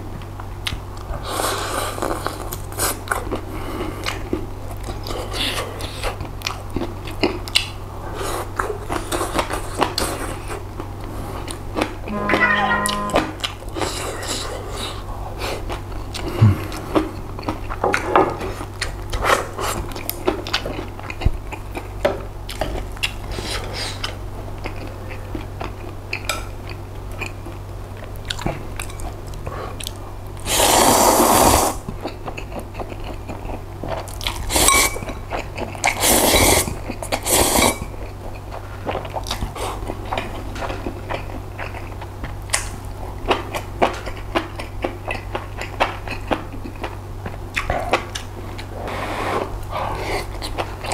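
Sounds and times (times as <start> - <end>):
chewing and crunching: 1.9 - 12.0, 13.9 - 30.0, 31.9 - 37.2, 37.8 - 50.9
slurping noodles: 30.5 - 31.8.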